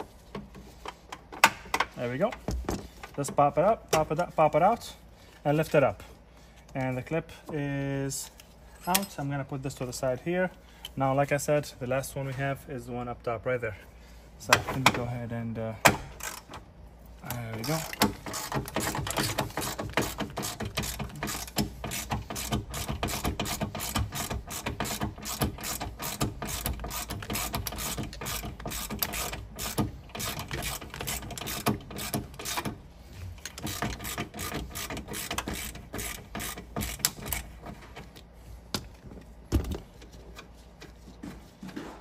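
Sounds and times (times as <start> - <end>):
ratchet wrench clicking: 17.7 - 32.7.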